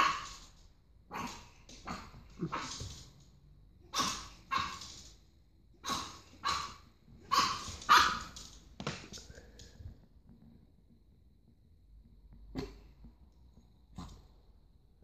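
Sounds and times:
puppy barking: 3.9 - 4.9, 5.8 - 8.4.

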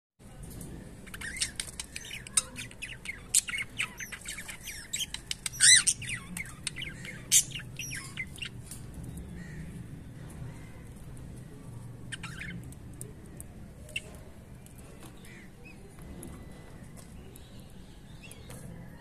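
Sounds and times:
cockatiels chirping and squawking: 1.0 - 8.7, 12.1 - 12.7.

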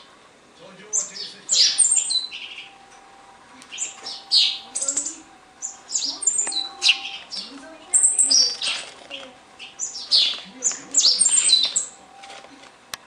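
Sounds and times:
young sparrow chirping: 0.9 - 2.8, 3.6 - 12.0.

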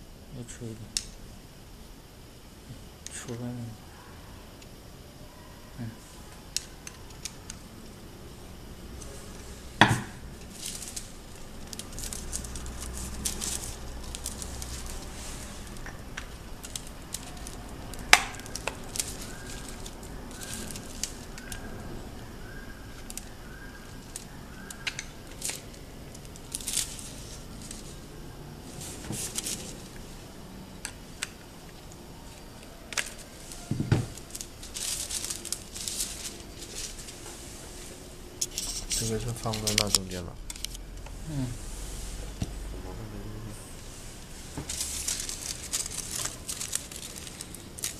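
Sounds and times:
foil crinkling: 10.4 - 21.8, 22.4 - 28.0, 33.0 - 37.2, 38.4 - 40.8, 44.4 - 47.9.

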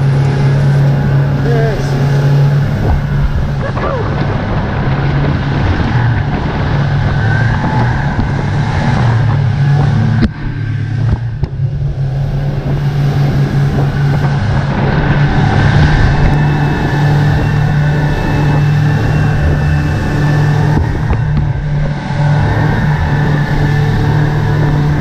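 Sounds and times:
outboard motors droning: 0.0 - 25.0
wind: 0.0 - 25.0.

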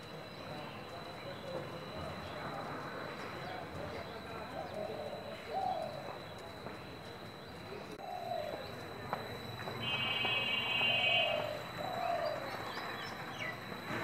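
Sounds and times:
street ambience: 0.0 - 14.0
dove cooing: 4.4 - 6.2, 8.0 - 8.7, 9.8 - 12.9.

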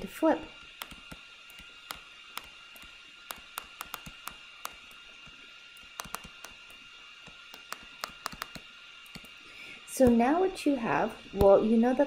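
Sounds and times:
stylus tapping on tablet screen: 0.8 - 5.0, 5.8 - 9.4.

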